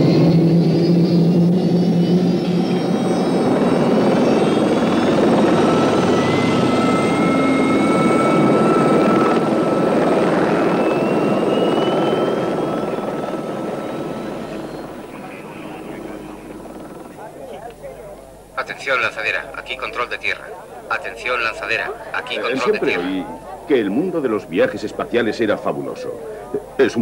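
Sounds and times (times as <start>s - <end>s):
thin rising whine: 0.0s - 17.2s
helicopter rotor and engine: 0.0s - 27.0s.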